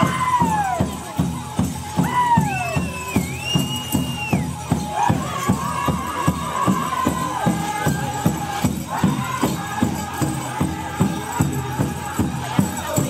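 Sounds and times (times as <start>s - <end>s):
large drum steady beat: 0.0s - 13.0s.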